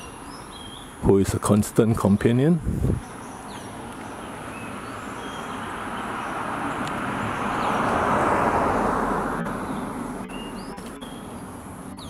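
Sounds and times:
vehicle passing by: 0:02.8 - 0:12.0.

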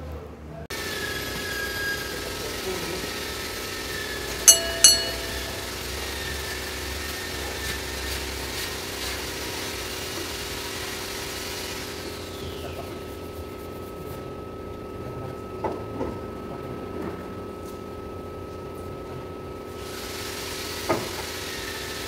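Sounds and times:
sharp ringing clinks: 0:04.5 - 0:05.9.

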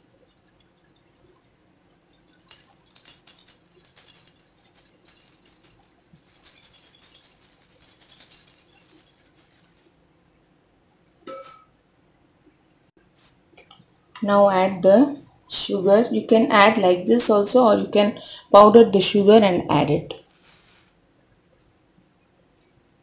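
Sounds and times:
flour sifting through sieve: 0:02.2 - 0:10.0, 0:20.2 - 0:21.0.

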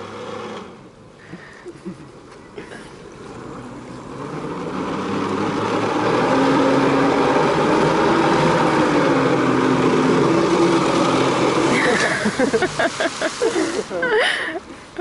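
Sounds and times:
jet ski engine revving: 0:00.0 - 0:14.1
water jet spray rushing: 0:04.2 - 0:14.6.

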